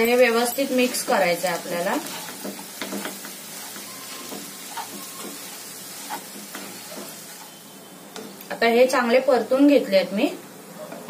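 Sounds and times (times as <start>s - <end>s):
low sizzle in pan: 0.0s - 11.0s
spatula scraping and tapping pan: 0.2s - 7.6s.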